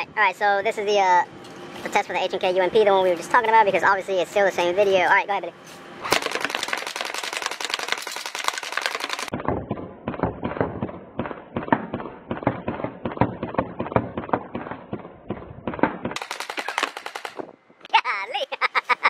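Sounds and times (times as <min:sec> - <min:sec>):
airsoft gun full-auto firing: 0:06.1 - 0:09.3, 0:15.8 - 0:17.4.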